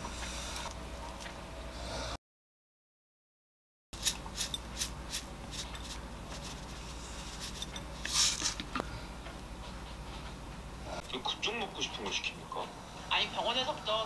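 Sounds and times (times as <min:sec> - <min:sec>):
rasp of ground seeds: 0:04.0 - 0:08.6.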